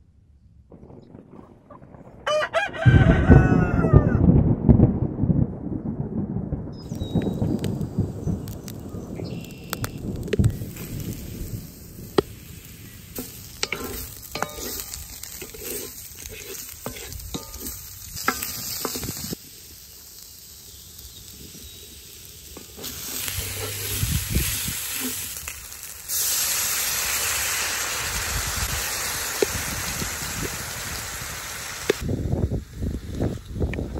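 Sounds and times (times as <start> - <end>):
vegetables sizzling in a pan: 6.9 - 33.7
loud steam hiss: 10.3 - 33.7
utensil scraping a pan: 13.1 - 19.4, 22.6 - 25.3.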